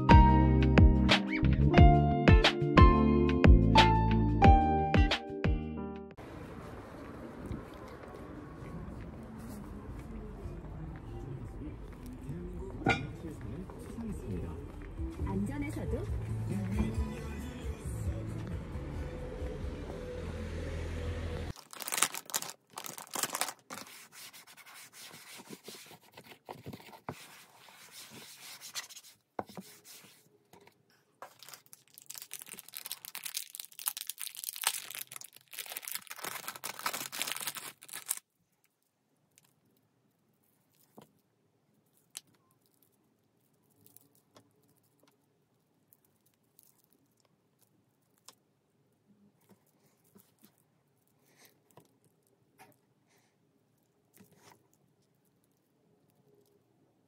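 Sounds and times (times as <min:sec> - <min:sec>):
paper wipe scrubbing on wood: 0:23.8 - 0:30.2.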